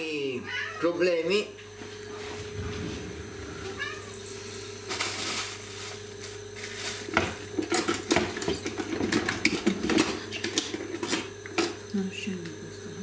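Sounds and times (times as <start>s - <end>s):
steady hum: 0.0s - 13.0s
kitchenware clattering: 7.1s - 11.8s.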